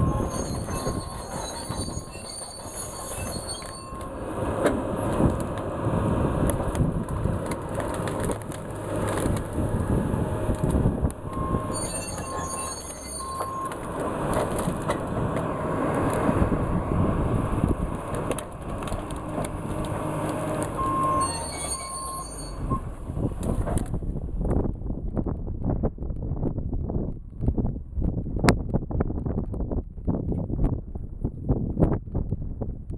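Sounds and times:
diesel engine running hard: 4.0s - 23.8s
logs knocking and cracking: 6.4s - 9.7s, 17.9s - 20.8s
short beeps: 11.3s - 13.8s, 20.8s - 22.8s.

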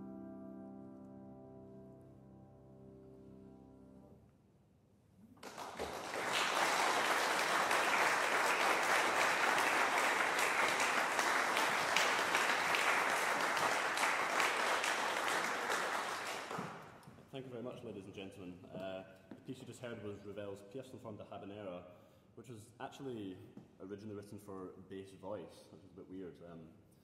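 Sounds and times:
audience applause: 5.4s - 17.0s.

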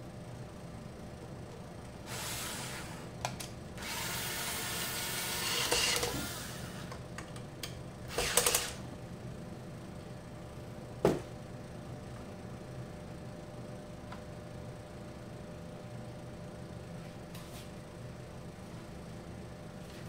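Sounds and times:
cordless drill driving screws: 8.1s - 8.8s.

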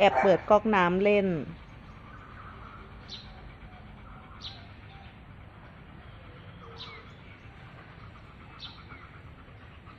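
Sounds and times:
small bird chirping: 6.0s - 9.8s.

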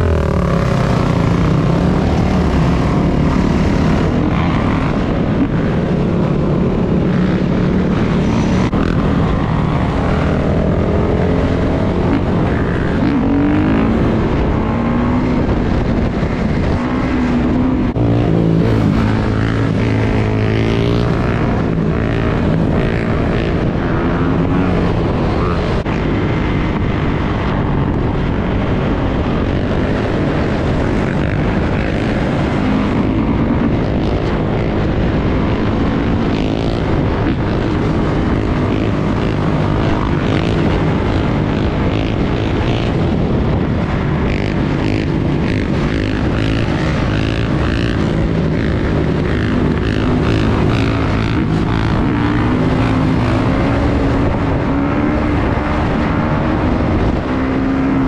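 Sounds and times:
dirt bike engine revving: 0.0s - 26.1s, 44.0s - 58.0s
steady low rush: 0.0s - 58.0s.

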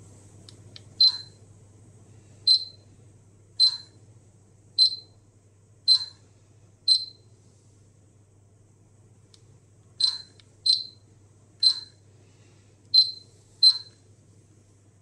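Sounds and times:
short high beeps: 13.0s - 13.9s.

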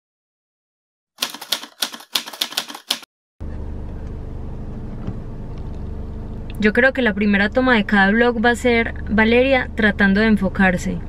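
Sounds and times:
typewriter key clicks: 1.2s - 3.1s
low hum inside a car: 3.4s - 11.0s.

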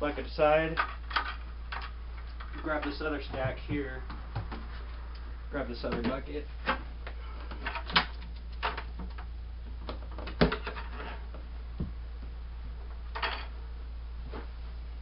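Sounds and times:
steady low hum: 0.0s - 15.0s
plastic buckets knocking: 2.6s - 4.8s.

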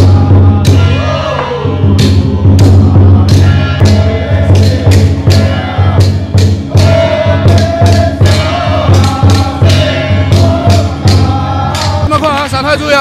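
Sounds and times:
drum and cymbal percussion: 0.0s - 13.0s.

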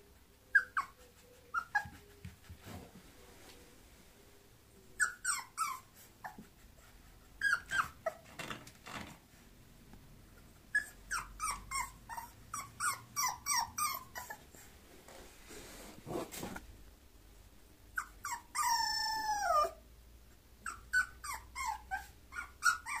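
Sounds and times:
puppy whimpering: 0.5s - 2.5s, 5.0s - 8.3s, 10.6s - 14.7s, 17.9s - 19.8s, 20.6s - 23.0s.

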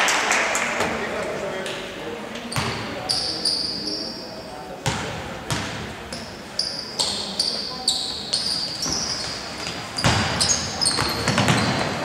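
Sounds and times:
sneaker squeaks on floor: 2.5s - 4.2s, 5.5s - 12.0s
basketball bouncing on hardwood: 10.0s - 10.4s, 11.0s - 11.9s.

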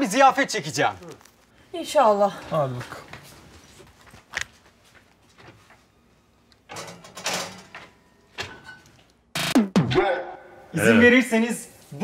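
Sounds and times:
oven door rattling: 6.7s - 8.8s.

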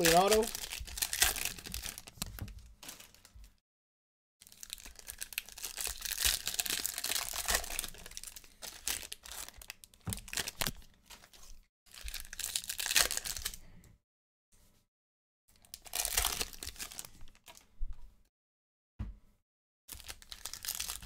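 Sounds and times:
foil wrapper crinkling: 0.0s - 3.6s, 4.4s - 13.6s, 15.6s - 17.7s, 19.9s - 21.0s.

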